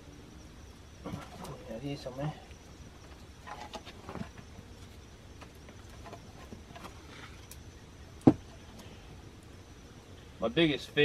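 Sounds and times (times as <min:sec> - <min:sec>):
faint background noise: 0:00.0 - 0:11.0
small ticks: 0:02.4 - 0:07.7
firewood knocking down: 0:08.2 - 0:08.5.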